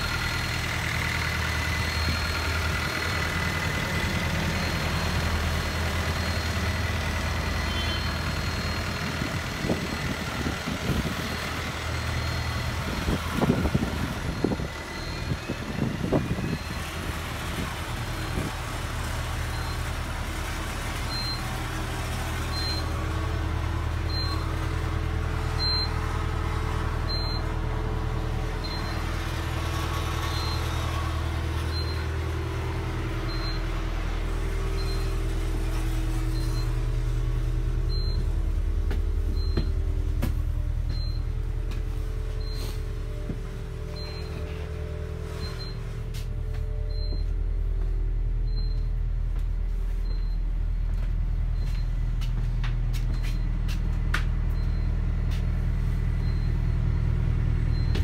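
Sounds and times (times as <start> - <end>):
bus idling hum: 0.0 - 58.0
faint high beep: 7.6 - 9.0, 36.3 - 36.8, 42.3 - 43.3, 43.9 - 44.6, 46.6 - 47.4, 50.0 - 50.9, 55.9 - 58.0.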